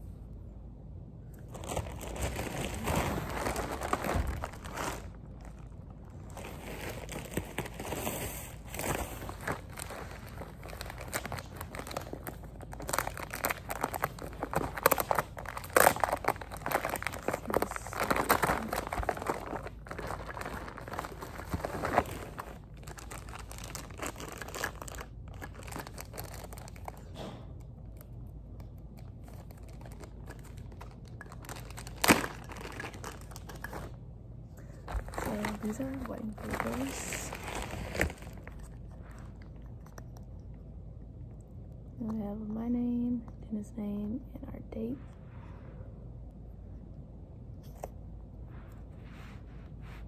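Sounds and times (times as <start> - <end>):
plastic mailers crinkling: 1.4 - 28.1, 29.0 - 34.0, 34.6 - 40.0.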